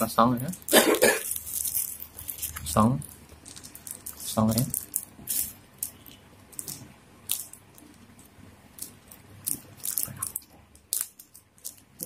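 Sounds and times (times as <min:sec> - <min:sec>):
packaging packet crinkling: 0:00.4 - 0:12.0.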